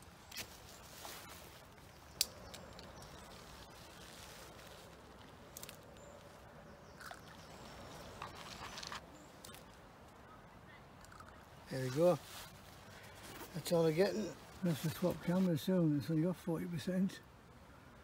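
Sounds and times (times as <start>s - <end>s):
faint outdoor background: 0.0s - 18.0s
light clicks and rustles: 7.1s - 10.2s.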